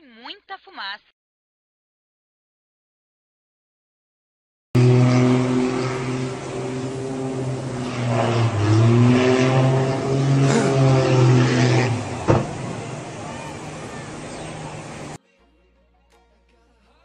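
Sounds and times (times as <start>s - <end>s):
propeller engine droning: 4.8s - 15.2s.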